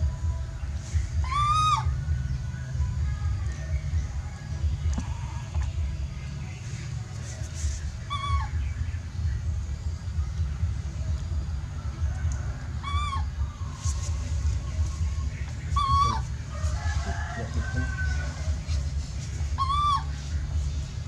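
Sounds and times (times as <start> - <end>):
steady low rumble: 0.0 - 21.0
baby monkey crying: 1.2 - 2.0, 8.0 - 8.7, 12.8 - 13.4, 15.6 - 16.4, 19.5 - 20.2.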